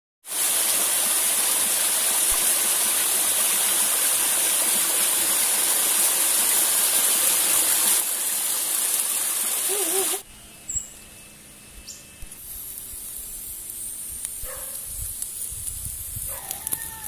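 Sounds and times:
waterfall splashing on rock: 0:00.2 - 0:10.2.

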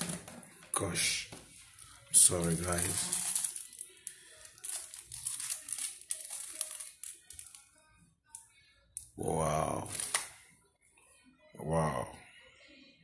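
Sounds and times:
rustling and crinkling: 0:01.8 - 0:07.6.

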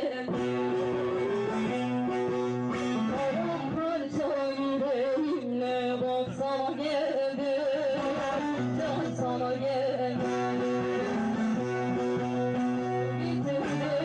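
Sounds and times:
woman singing into a microphone: 0:00.0 - 0:14.0
long-necked lute playing: 0:00.3 - 0:05.4, 0:08.0 - 0:14.0.

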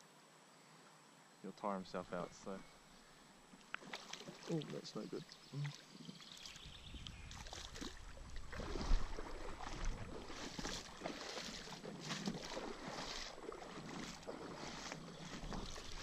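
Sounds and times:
water sloshing around legs: 0:03.6 - 0:16.0
wind on microphone: 0:06.6 - 0:10.8.

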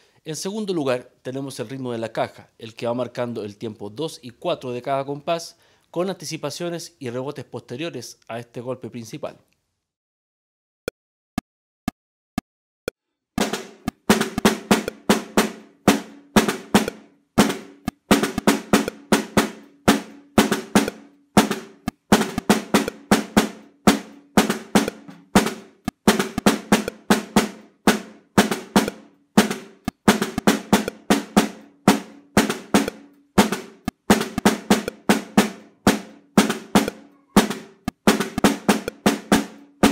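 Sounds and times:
snare drum played with sticks: 0:13.4 - 0:39.9.

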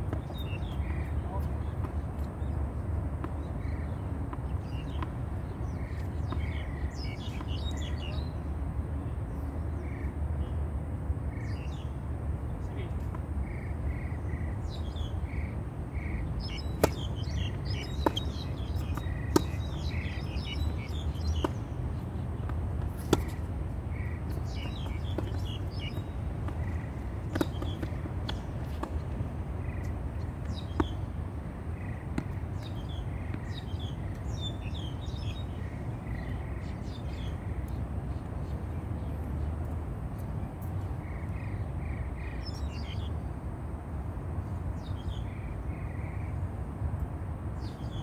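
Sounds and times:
birds chirping: 0:00.0 - 0:10.6, 0:11.3 - 0:43.4
steady low rumble: 0:00.0 - 0:42.5
tennis ball struck by rackets: 0:16.5 - 0:21.8, 0:22.4 - 0:31.0, 0:32.0 - 0:33.5.

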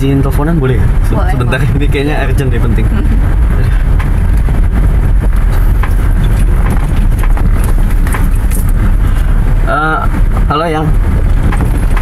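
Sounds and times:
road and engine rumble: 0:00.0 - 0:12.0
light knocks and rattles: 0:11.3 - 0:12.0.

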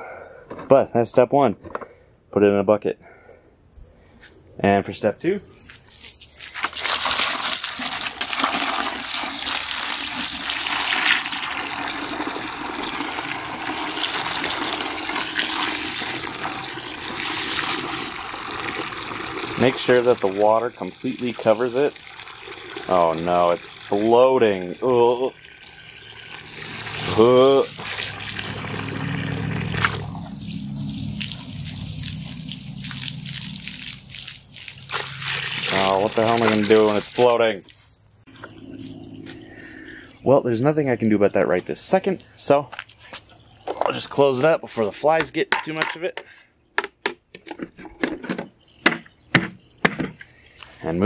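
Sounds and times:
water drips and trickles: 0:05.8 - 0:38.1
hose pouring water into bucket: 0:05.9 - 0:38.1.

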